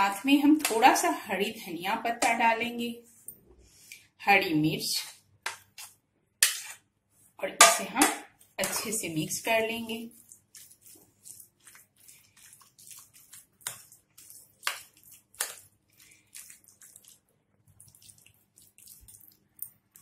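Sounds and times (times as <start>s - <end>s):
spoon stirring wet yogurt: 0.1s - 1.1s, 5.5s - 20.0s.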